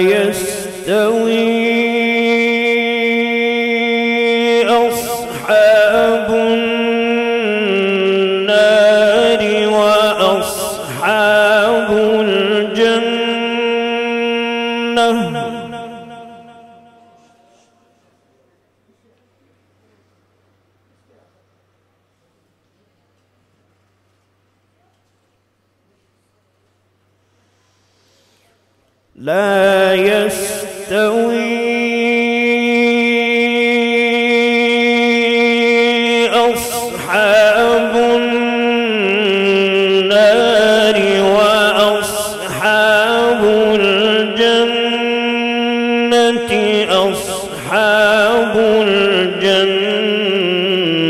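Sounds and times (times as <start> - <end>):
man chanting melodically: 0.0 - 18.0, 29.2 - 51.0.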